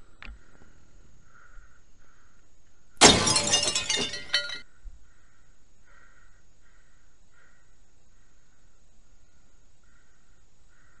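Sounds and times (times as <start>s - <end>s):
glass shattering crash: 3.0s - 4.6s.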